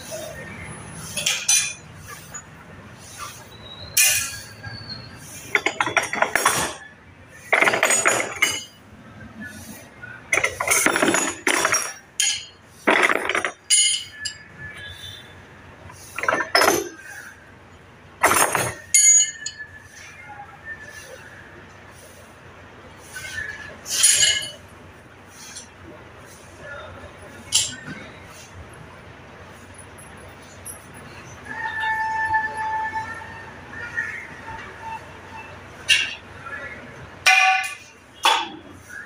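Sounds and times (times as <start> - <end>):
metal tools clinking: 1.2 - 2.5, 4.0 - 4.5, 5.5 - 6.8, 7.5 - 8.8, 10.3 - 14.5, 16.1 - 17.1, 18.2 - 19.6, 23.9 - 24.6.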